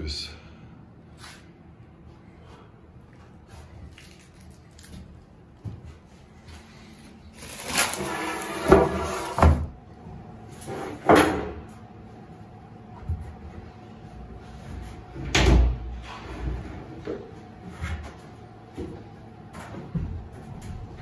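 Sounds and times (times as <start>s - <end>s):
plastic sheeting crackling: 7.3s - 8.6s.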